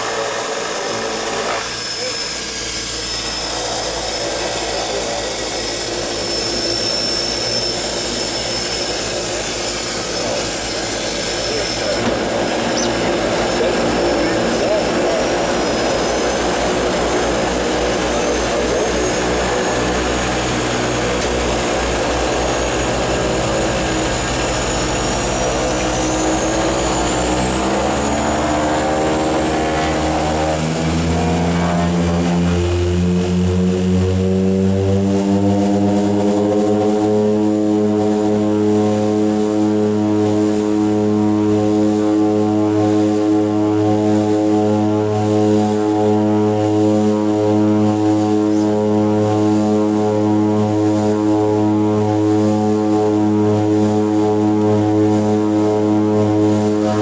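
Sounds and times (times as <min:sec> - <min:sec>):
propeller drone: 0:00.0 - 0:57.0
turbine whine: 0:00.0 - 0:57.0.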